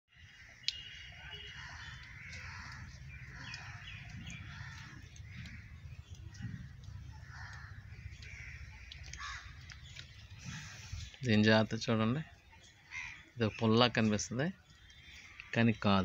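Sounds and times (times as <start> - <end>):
birds chirping: 0.1 - 16.0
harsh bird calls: 0.1 - 16.0
steady low rumble: 2.0 - 11.0.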